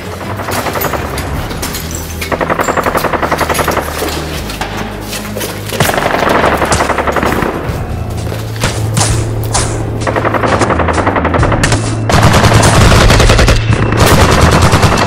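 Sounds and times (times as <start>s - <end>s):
music score with low drone: 0.0s - 15.0s
machine-gun fire: 5.8s - 7.8s, 10.0s - 15.0s.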